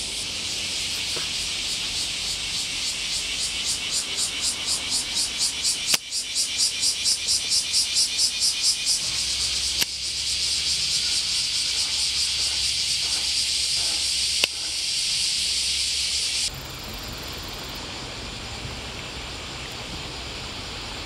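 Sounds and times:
cicadas singing: 0.0 - 21.0
sharp clicks: 5.9 - 6.1, 9.8 - 10.0.

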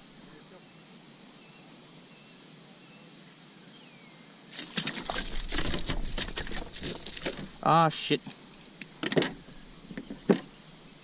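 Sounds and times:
faint hiss: 0.0 - 11.0
crackling and rustling of handling: 4.5 - 10.6.

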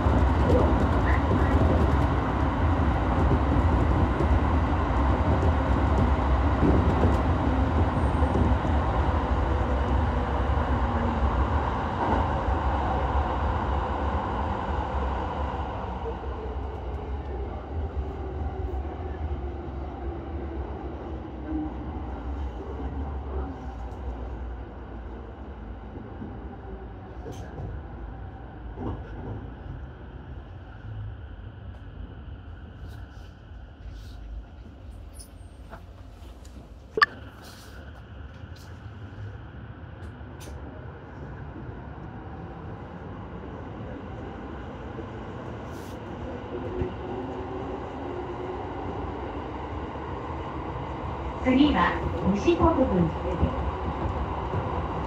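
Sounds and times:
train wheels and motors rumbling: 0.0 - 15.2.

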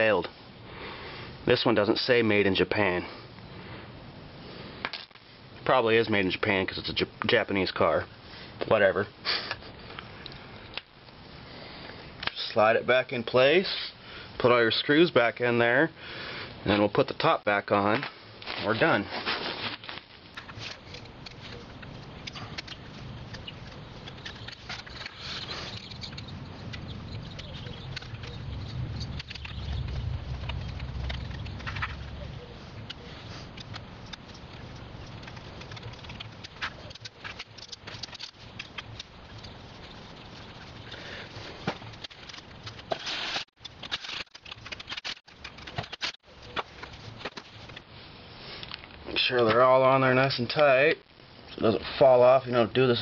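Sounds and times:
steady low rumble: 20.1 - 42.9
screwdriver clicks and scrapes: 32.8 - 39.6, 41.9 - 47.8.

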